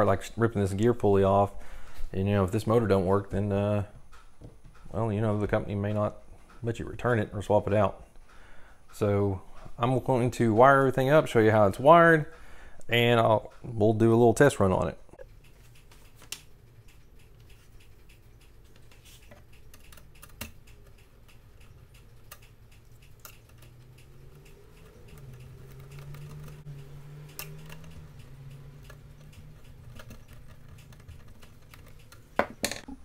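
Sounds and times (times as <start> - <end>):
screwdriver and wire clicks: 15.4 - 32.9.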